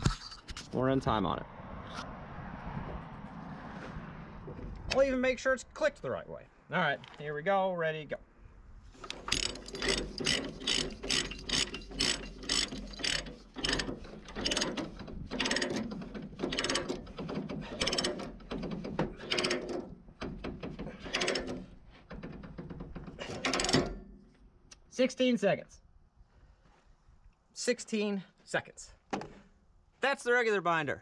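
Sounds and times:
ratchet pawl clicking: 9.0s - 19.8s, 22.8s - 24.0s.

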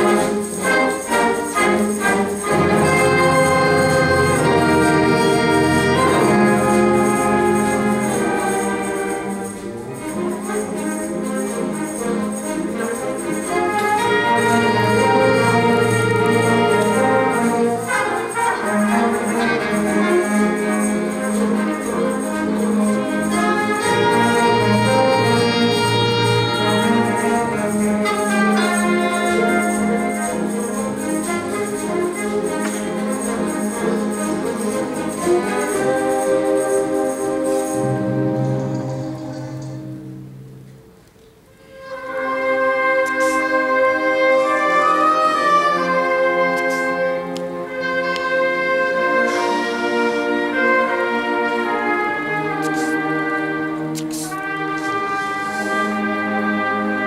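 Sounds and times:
orchestra playing disco-style music: 0.0s - 57.0s.

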